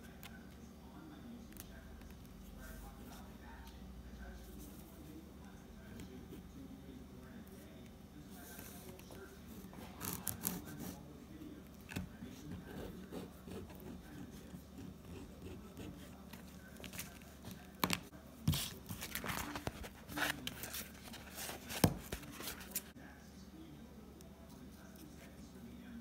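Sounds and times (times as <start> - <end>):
pen scratching on card: 9.8 - 11.0
card sheet rustling: 16.2 - 22.9.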